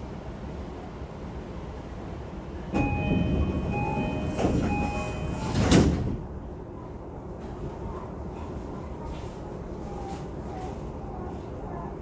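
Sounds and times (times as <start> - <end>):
train doors shutting thud: 2.7 - 6.4
two-tone door chime: 2.8 - 5.7.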